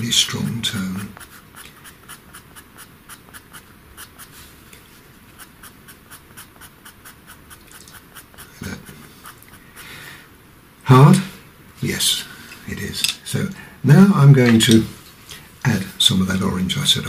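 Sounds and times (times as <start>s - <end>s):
pencil scratching on paper: 0.0s - 9.9s.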